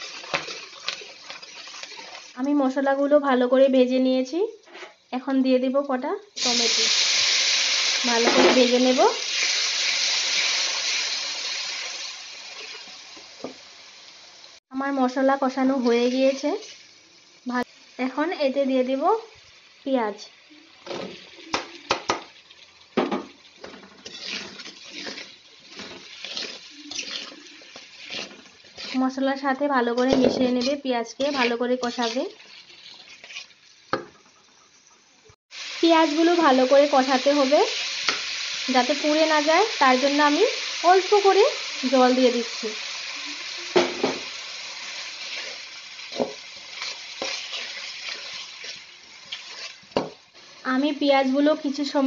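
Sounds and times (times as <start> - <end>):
spatula scraping pan: 0.0 - 2.3, 23.6 - 34.4, 45.1 - 50.6
onions sizzling in oil: 0.0 - 52.0
spatula knocking on pan: 21.5 - 22.3.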